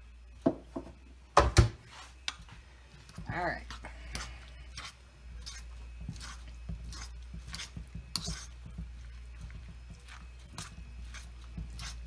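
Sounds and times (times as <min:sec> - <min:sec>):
steady low hum: 0:00.0 - 0:12.0
hand squishing food in bowl: 0:03.6 - 0:12.0.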